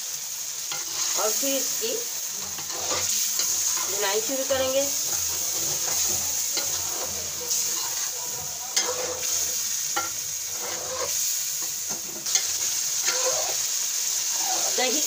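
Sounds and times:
yogurt sizzling in a pan: 0:00.0 - 0:15.0
metal spoon scraping a pan: 0:00.7 - 0:15.0
spoon knocking against pan: 0:10.0 - 0:10.2.

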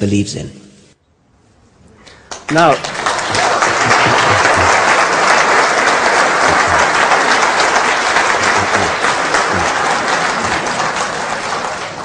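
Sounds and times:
audience applauding: 0:02.1 - 0:12.0.

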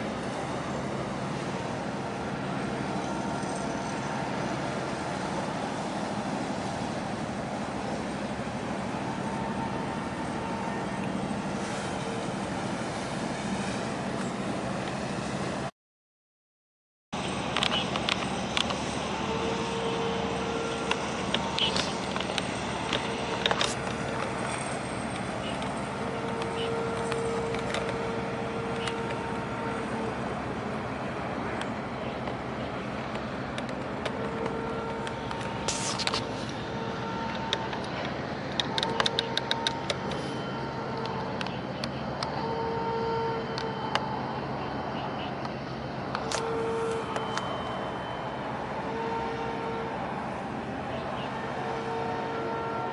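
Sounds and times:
marine engine droning: 0:00.0 - 0:15.7, 0:17.2 - 0:52.9
wind and water hiss: 0:00.0 - 0:15.7, 0:17.2 - 0:52.9
brief hiss: 0:35.7 - 0:36.6.

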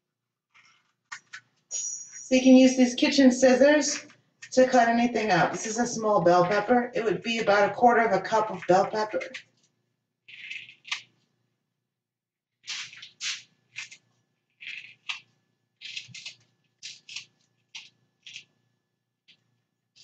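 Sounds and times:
scissors snipping pepper: 0:15.8 - 0:18.5.

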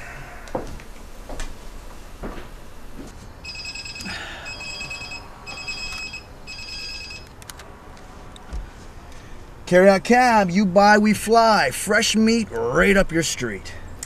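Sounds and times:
telephone ringing: 0:03.4 - 0:07.4.

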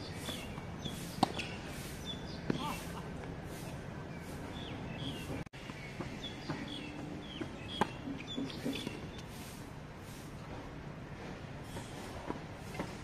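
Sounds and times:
birds chirping: 0:00.0 - 0:09.5.

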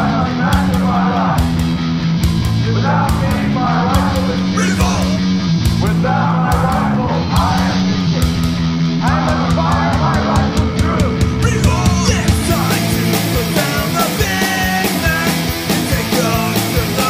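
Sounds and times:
distorted electric guitar: 0:00.0 - 0:17.0
drum beat with cymbals: 0:09.3 - 0:17.0.

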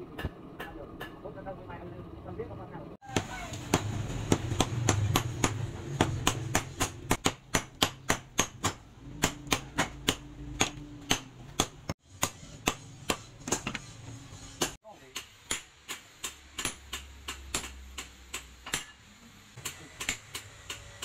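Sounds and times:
hammer striking steel on anvil: 0:03.1 - 0:13.8, 0:14.6 - 0:19.0.

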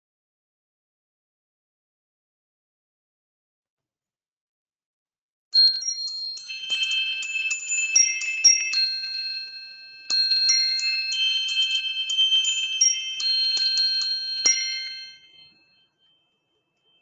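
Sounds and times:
bell-like chime melody: 0:05.6 - 0:17.0.

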